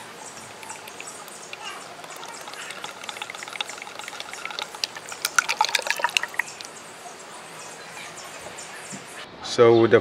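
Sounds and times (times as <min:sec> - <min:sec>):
fluid pouring into funnel: 0:00.0 - 0:06.7
glugs and splashes: 0:00.0 - 0:06.7.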